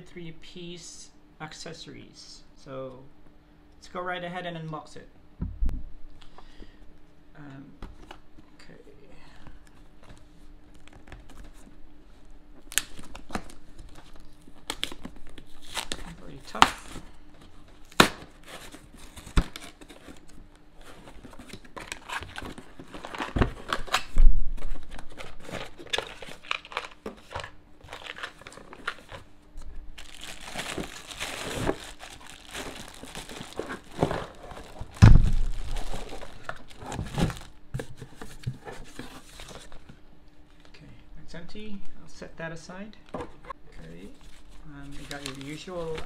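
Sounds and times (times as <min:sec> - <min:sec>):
packing paper crinkling: 0:12.7 - 0:29.3, 0:30.0 - 0:37.6, 0:44.0 - 0:46.0
cardboard flaps tearing and scraping: 0:30.0 - 0:37.5
cardboard thumps: 0:33.5 - 0:35.6.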